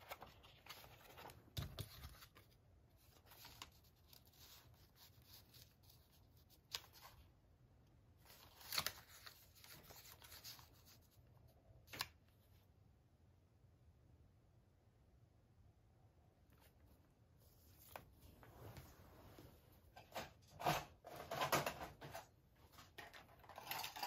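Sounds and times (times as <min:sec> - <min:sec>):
paper rustling and tapping: 0:00.0 - 0:05.7.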